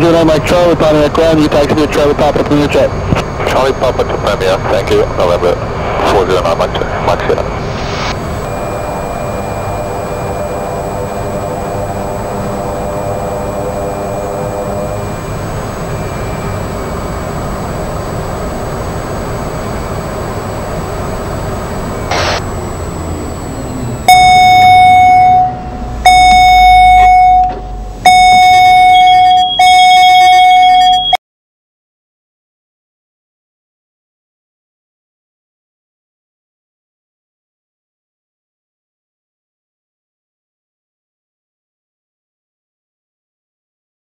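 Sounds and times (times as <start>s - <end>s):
turboprop engine droning: 0.0s - 30.0s
loud electronic tones: 0.0s - 31.2s.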